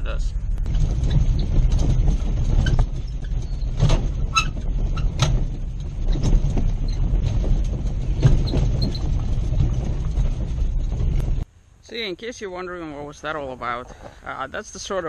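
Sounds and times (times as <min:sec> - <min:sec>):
trailer clanking and rattling: 0:00.0 - 0:11.5
vehicle engine low rumble: 0:00.0 - 0:14.3.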